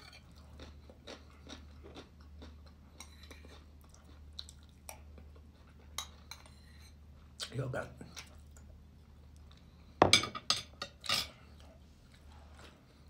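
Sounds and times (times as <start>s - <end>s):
chewing rice: 0.0s - 7.5s.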